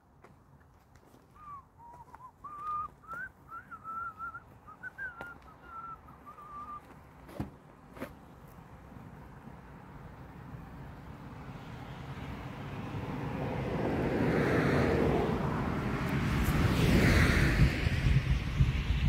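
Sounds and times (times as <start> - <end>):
person whistling a tune: 1.4 - 6.9.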